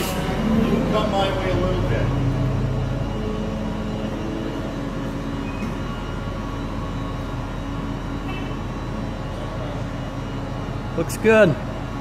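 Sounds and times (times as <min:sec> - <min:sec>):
machine engine droning: 0:00.0 - 0:12.0.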